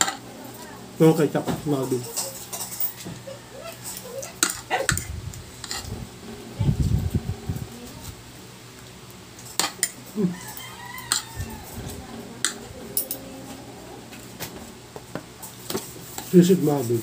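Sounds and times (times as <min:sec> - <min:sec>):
cutlery clinking on a plate: 0:02.0 - 0:03.0, 0:11.1 - 0:11.3.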